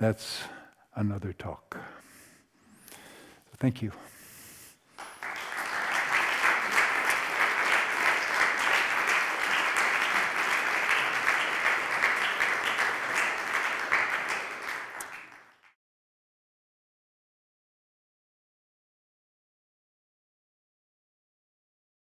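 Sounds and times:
audience applauding: 5.0s - 15.8s.

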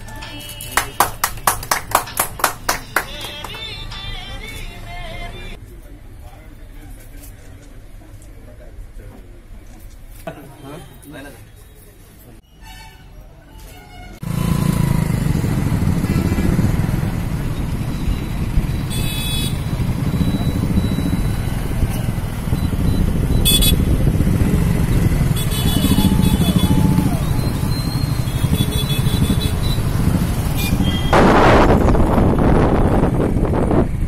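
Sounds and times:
motorcycles riding past: 14.2s - 33.0s.

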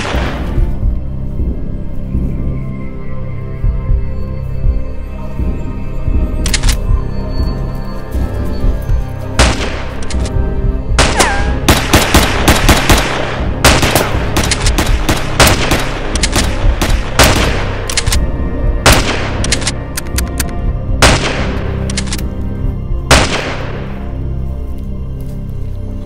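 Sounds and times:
gunshots: 0.0s - 0.7s, 9.4s - 10.3s, 11.0s - 18.2s, 18.8s - 20.4s, 21.0s - 22.2s, 23.1s - 24.0s
background music: 0.0s - 26.0s.

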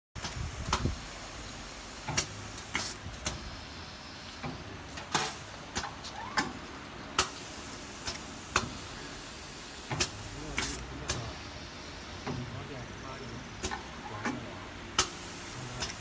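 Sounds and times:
steady machine hum: 0.2s - 16.0s
pneumatic clamp clicks: 2.1s - 3.4s, 9.9s - 11.2s, 15.0s - 15.2s
short air hisses: 2.1s - 3.5s, 7.2s - 11.2s, 15.0s - 16.0s.

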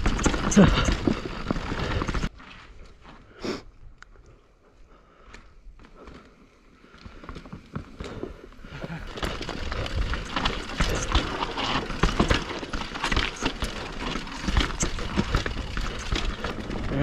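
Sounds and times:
mountain bike rattling over rocks: 0.0s - 2.3s, 5.8s - 17.0s.

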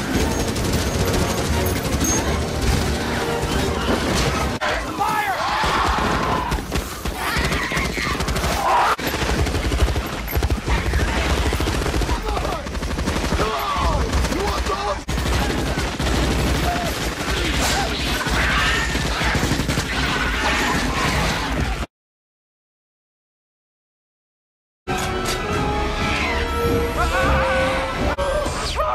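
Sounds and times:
automatic gunfire: 6.7s - 20.1s
people crying out: 26.2s - 28.9s.

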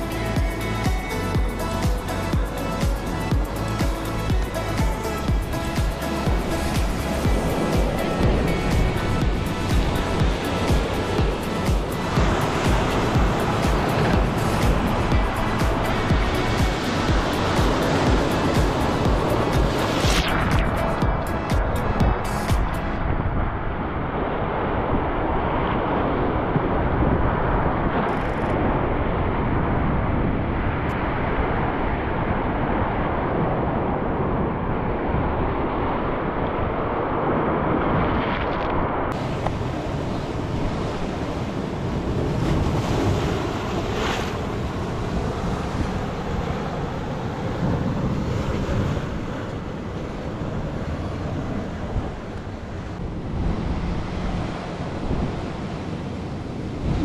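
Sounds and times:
wind noise on microphone: 0.0s - 57.0s
surf breaking on rocks: 2.8s - 23.0s, 36.8s - 57.0s.

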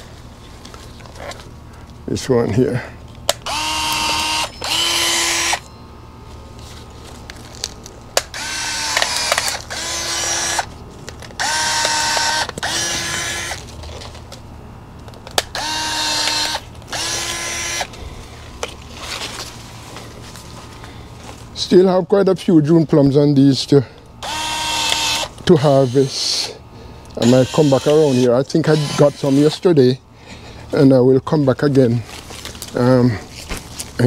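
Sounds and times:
electric shears motor whine: 3.3s - 5.8s, 8.2s - 14.1s, 15.4s - 21.4s, 24.2s - 26.6s, 27.2s - 29.7s.

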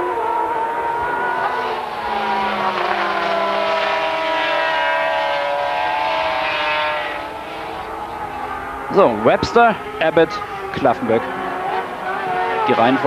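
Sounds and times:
racing engines at high revs: 0.0s - 13.0s.

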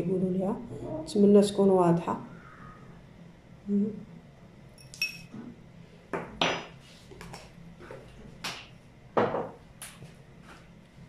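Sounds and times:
metal spoon clinking on dishes: 4.8s - 5.3s.

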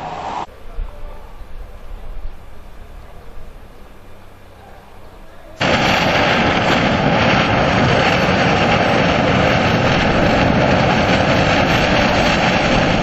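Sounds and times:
steam jet rushing hiss: 0.0s - 0.5s, 5.6s - 13.0s.

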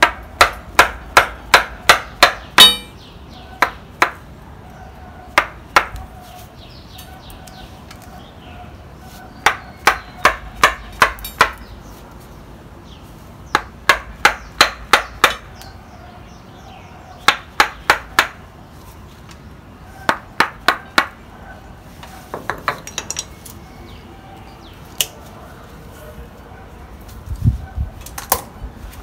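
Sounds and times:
mallet striking chisel: 0.0s - 3.0s.

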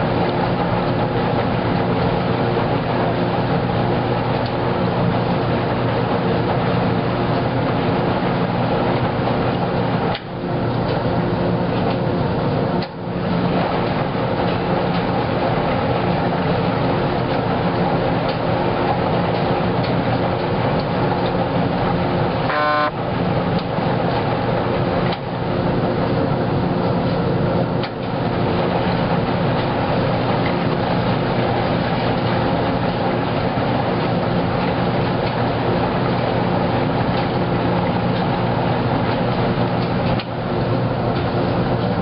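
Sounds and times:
washing machine tumbling laundry: 0.0s - 42.0s
short buzzing tone: 22.5s - 23.0s.

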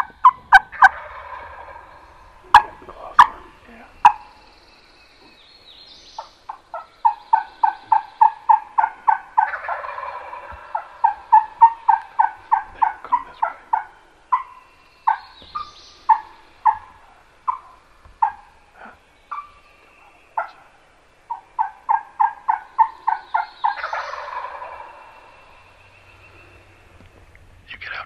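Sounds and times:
turkey yelps: 0.0s - 4.4s, 6.2s - 18.6s, 19.3s - 19.6s, 21.3s - 25.2s
turkey gobbling: 0.0s - 4.5s, 6.2s - 26.6s.

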